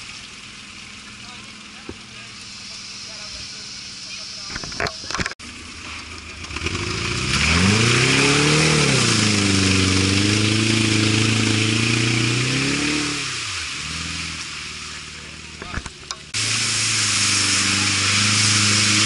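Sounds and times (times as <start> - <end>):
loud rushing hiss: 2.2 - 4.5, 16.3 - 19.0
engine revving hard: 6.5 - 15.5, 16.3 - 19.0.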